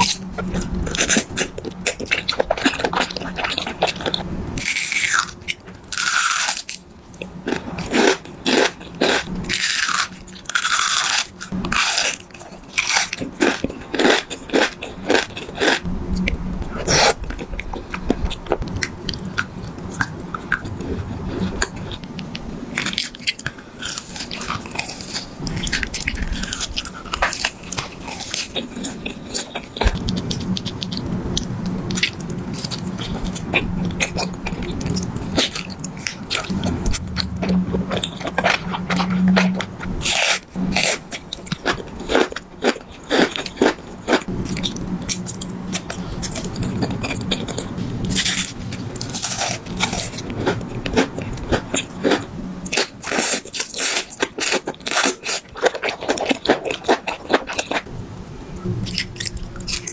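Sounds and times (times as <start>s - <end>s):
steady low hum: 0.0s - 59.9s
mouth eating sounds: 22.8s - 57.9s.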